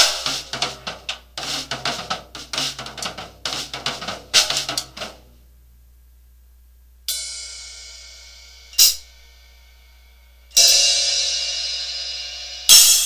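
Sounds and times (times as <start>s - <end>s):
cymbal crashes: 7.1s - 13.0s.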